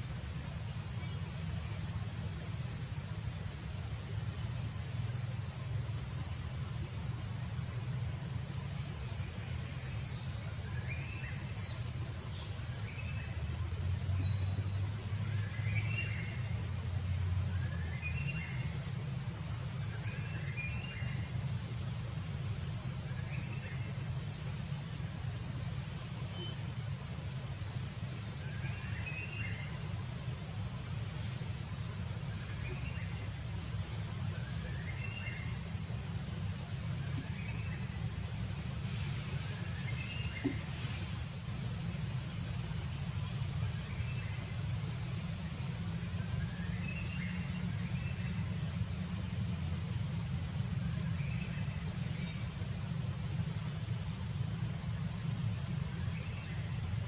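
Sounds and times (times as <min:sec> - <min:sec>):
high insect drone: 0:00.0 - 0:57.0.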